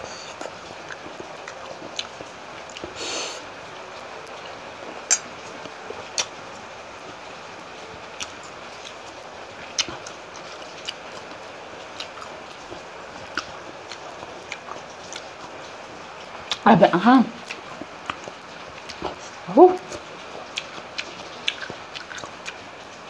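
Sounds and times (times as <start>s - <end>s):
person chewing: 0.0s - 3.4s, 5.0s - 6.3s, 8.2s - 15.6s, 17.4s - 22.7s.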